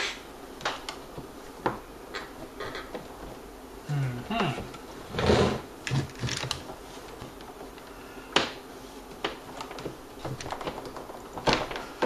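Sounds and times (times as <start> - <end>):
cord and wires clicking: 5.8 - 8.6, 9.2 - 12.0.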